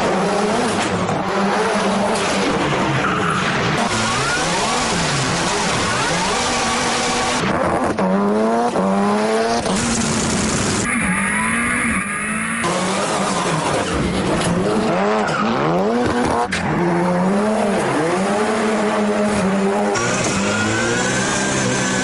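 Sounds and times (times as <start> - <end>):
rally car engine revving: 0.0 - 22.0
tyres squealing and skidding: 2.2 - 6.4, 10.6 - 22.0.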